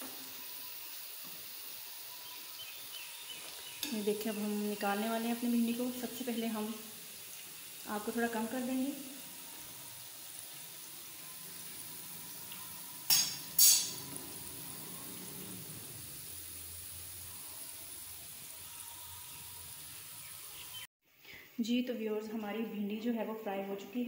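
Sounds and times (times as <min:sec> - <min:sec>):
okra sizzling in oil: 0:00.0 - 0:20.9
metal spoon clanking on pan: 0:12.5 - 0:14.2.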